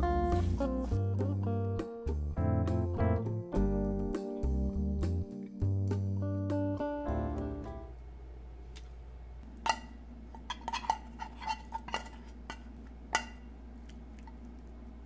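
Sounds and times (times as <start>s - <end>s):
metal spoon clinking in tin can: 9.7s - 13.4s.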